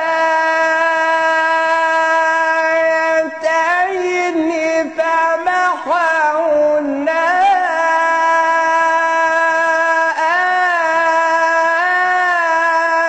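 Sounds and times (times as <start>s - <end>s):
man reciting melodically: 0.0s - 13.0s.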